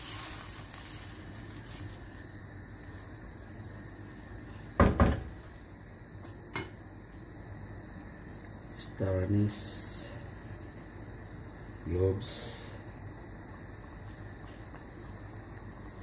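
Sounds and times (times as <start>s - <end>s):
sauce simmering: 0.0s - 4.8s, 10.2s - 16.0s.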